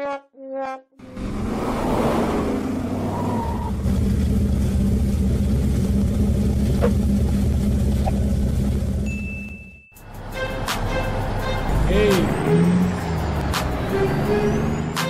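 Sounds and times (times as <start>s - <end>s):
car engine revving: 1.0s - 9.1s, 10.8s - 15.0s.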